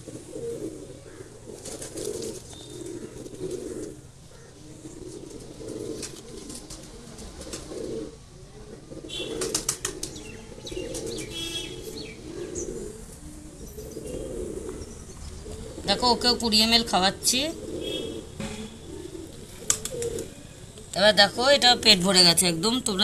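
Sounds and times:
pigeons cooing: 0.0s - 23.0s
wings flapping: 1.5s - 3.9s, 5.0s - 8.1s, 9.1s - 11.2s, 18.4s - 20.4s.

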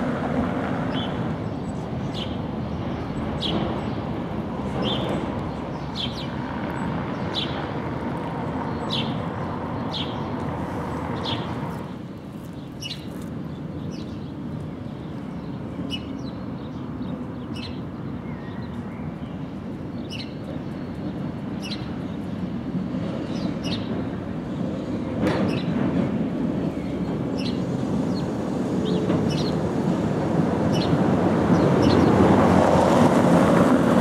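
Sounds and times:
tram rumbling on track: 0.0s - 34.0s
bird chirping: 11.1s - 22.5s, 23.2s - 24.1s, 26.7s - 29.6s, 30.7s - 32.2s.

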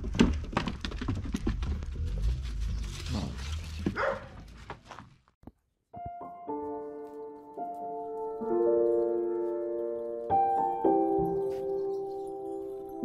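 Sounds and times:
dogs scuffing and clattering: 0.1s - 5.1s
gentle piano music: 5.9s - 13.0s.

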